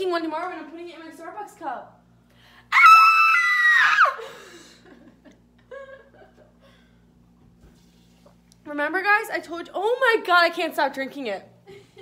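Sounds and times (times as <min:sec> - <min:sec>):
woman squealing: 0:02.7 - 0:04.3.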